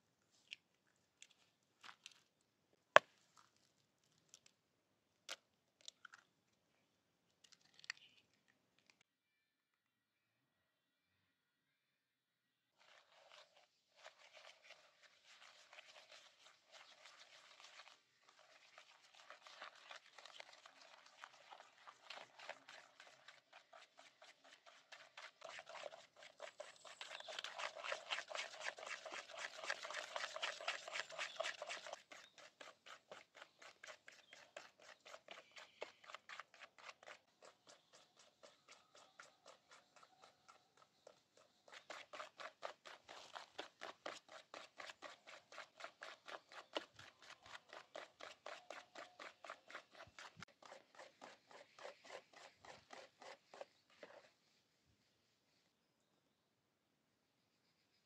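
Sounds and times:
whisk beating batter in bowl: 12.8 - 54.4.

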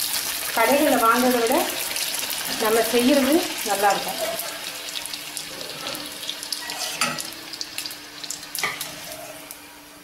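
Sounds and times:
food deep-frying in hot oil: 0.0 - 10.0.

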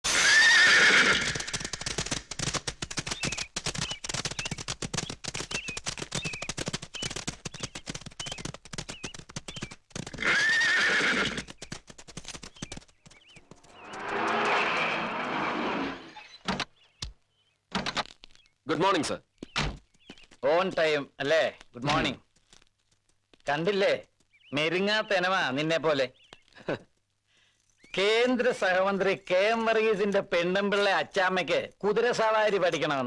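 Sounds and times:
horses whinnying: 0.1 - 1.8, 10.1 - 11.5, 13.6 - 16.4
hooves cantering on sand: 0.6 - 15.2, 18.2 - 33.0.

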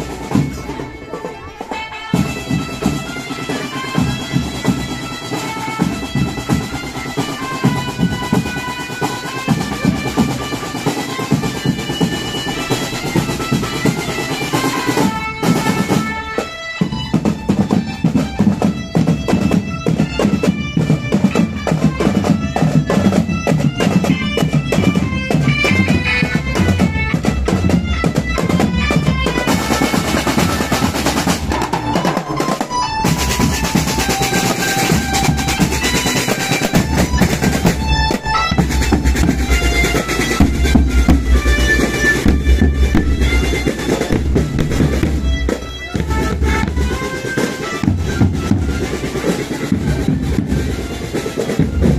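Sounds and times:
marching drums beating: 0.0 - 51.9
reedy keyboard melody through loudspeaker: 31.9 - 47.8.

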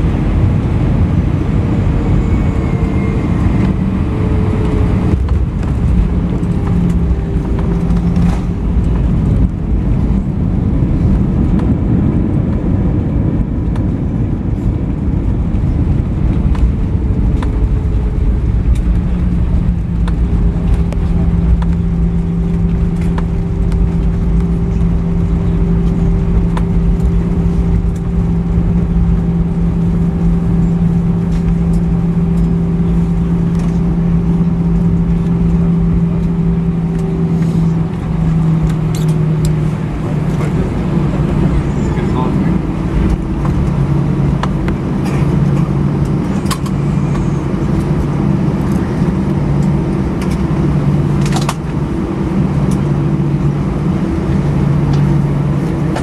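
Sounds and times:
rumble of jet engines and wheels: 0.0 - 56.0
steady low hum: 0.0 - 56.0.

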